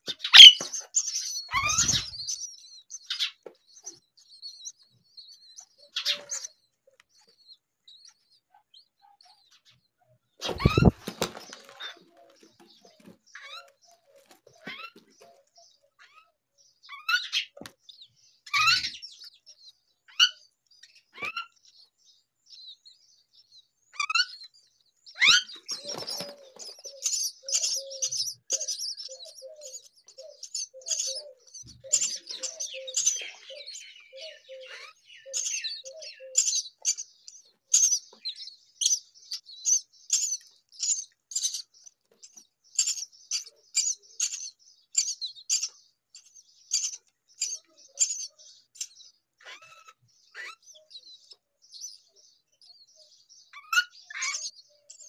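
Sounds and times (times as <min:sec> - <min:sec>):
rising bird calls: 0:00.0 - 0:00.7, 0:10.4 - 0:12.0, 0:25.2 - 0:36.6
nestlings chirping: 0:00.0 - 0:55.0.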